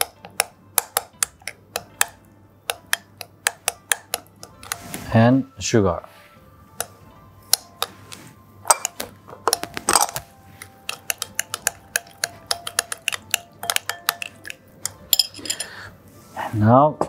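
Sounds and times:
utensil clinking against glass bowl: 8.7s - 10.2s, 10.8s - 15.8s.

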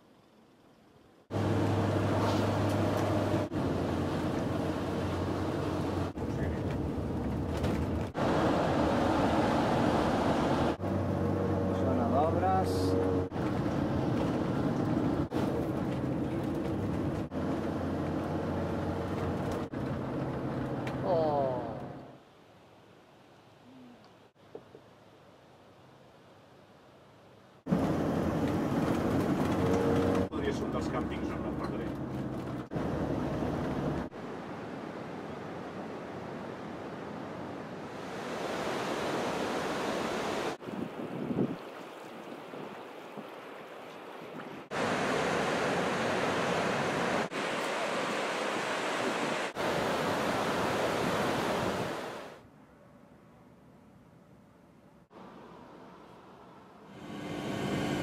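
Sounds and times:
car engine and tyre noise: 0.0s - 21.1s, 27.0s - 35.3s, 55.1s - 58.0s
waterfall rushing: 44.7s - 52.4s.

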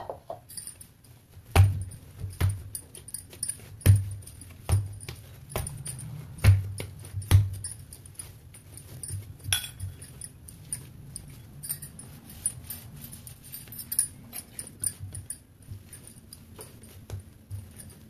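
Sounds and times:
dough thumping while kneaded: 1.4s - 10.1s.

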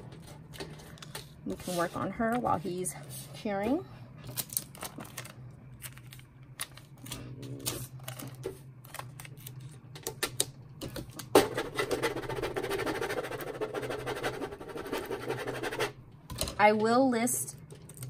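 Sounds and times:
plastic scraper rubbing tape: 11.8s - 15.9s.

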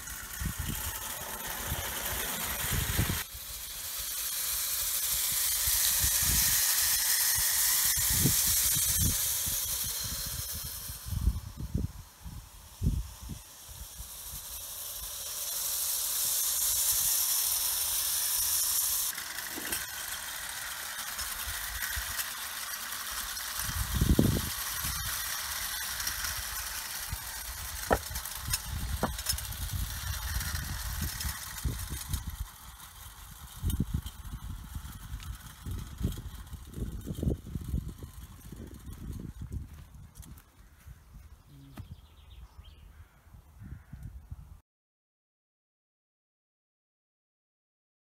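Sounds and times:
toy train wheels rattling: 0.0s - 40.9s
clockwork motor whirring: 0.0s - 41.9s
wind rumble on microphone: 7.4s - 14.5s, 23.7s - 25.2s, 33.4s - 44.6s.

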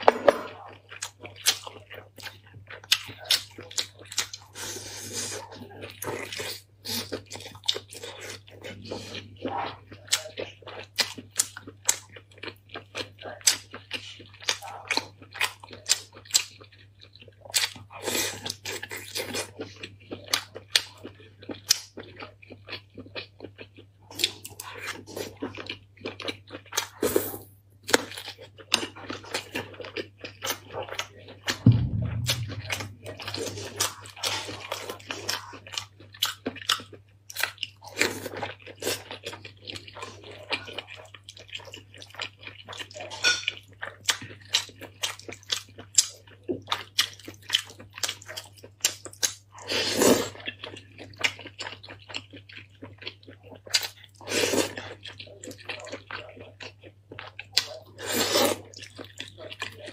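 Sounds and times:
chewing and biting food: 0.0s - 31.6s, 33.1s - 59.9s
steady low hum: 31.6s - 33.8s.

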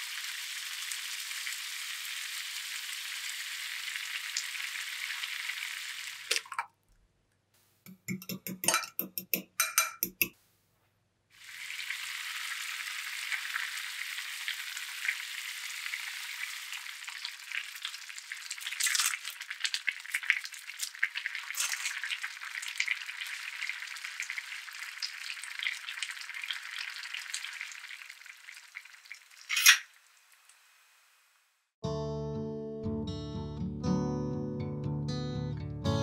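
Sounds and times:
broth bubbling in a pan: 0.0s - 6.6s, 11.4s - 31.5s.

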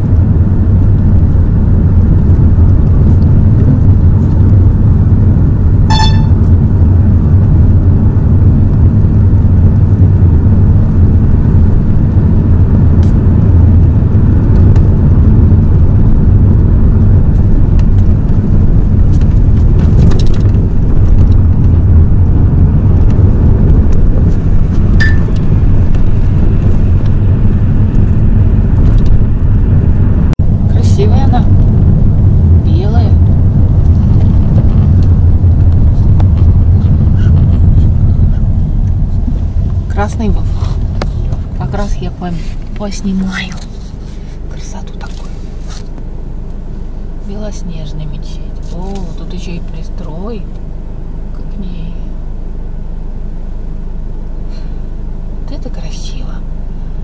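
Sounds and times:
car engine and road rumble: 0.0s - 57.0s
short beep: 5.9s - 6.4s, 25.0s - 25.3s.

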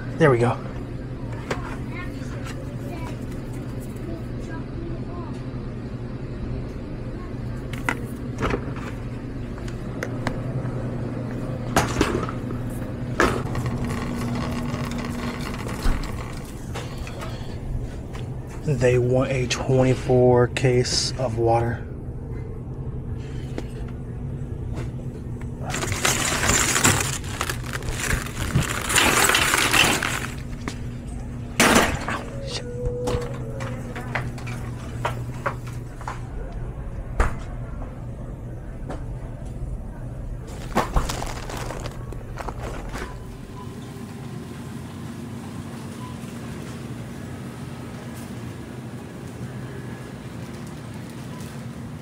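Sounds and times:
shopping cart wheels rumbling: 10.6s - 19.3s, 25.6s - 32.6s, 39.9s - 44.7s
plastic wrap crinkling: 13.4s - 16.7s, 25.6s - 30.8s, 40.4s - 43.5s.

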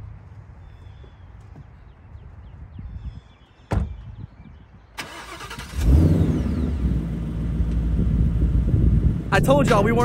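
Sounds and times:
car engine firing and idling: 5.0s - 10.0s.

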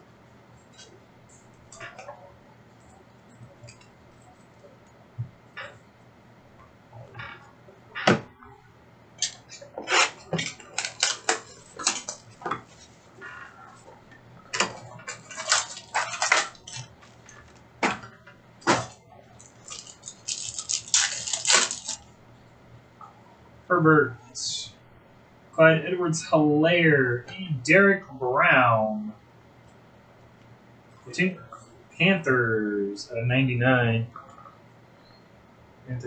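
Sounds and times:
card pack wrappers crinkling: 10.0s - 12.4s, 15.0s - 17.6s, 19.4s - 22.1s.

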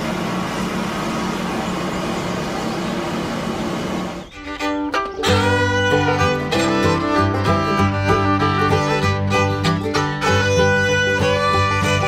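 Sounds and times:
fiddle and guitar music: 4.3s - 12.0s.

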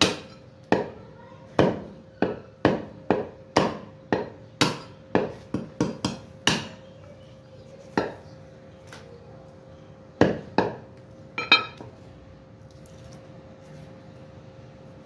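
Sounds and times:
meat cleaver chopping bone on wood: 0.0s - 1.0s, 1.6s - 6.8s.

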